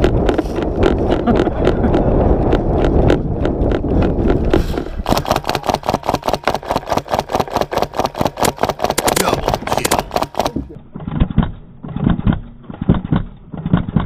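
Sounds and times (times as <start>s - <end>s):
running footsteps: 0.0s - 10.8s
wind rumbling: 0.0s - 11.1s
gear rattling: 0.0s - 14.0s
rapid sharp clicks: 0.0s - 14.0s.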